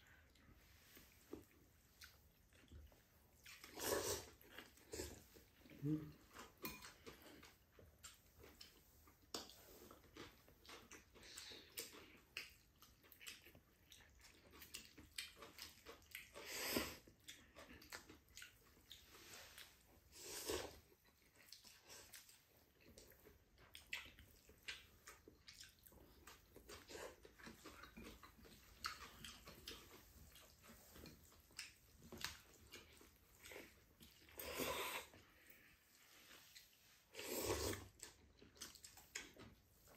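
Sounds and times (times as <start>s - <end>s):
chewing: 0.0s - 39.9s
people slurping noodles: 3.7s - 6.3s, 37.1s - 38.0s.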